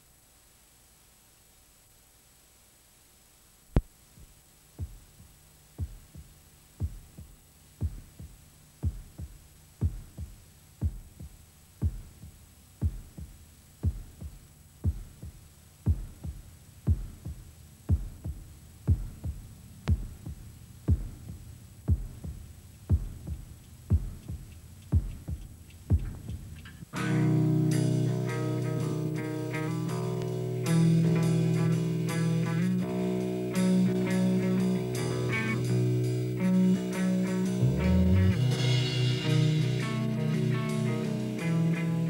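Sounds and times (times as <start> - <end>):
faint low hum: 0.0 - 42.0
heartbeat thumps: 3.8 - 27.0.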